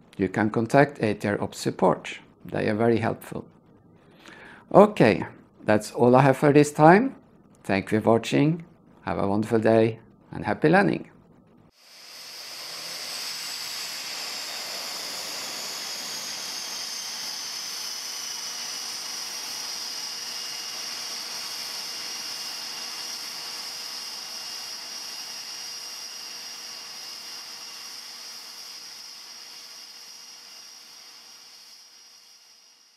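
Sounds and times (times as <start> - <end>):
aircraft turbine engine whine: 11.7 - 32.9.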